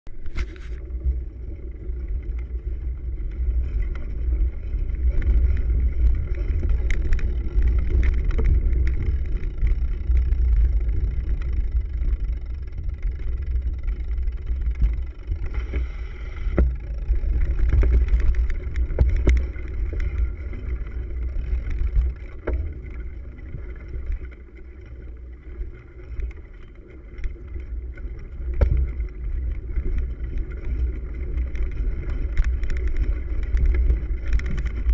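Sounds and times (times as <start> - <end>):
bike tyres rumbling on rough ground: 0.1 - 34.9
bike knocks and rattles: 3.5 - 24.3, 28.4 - 34.9.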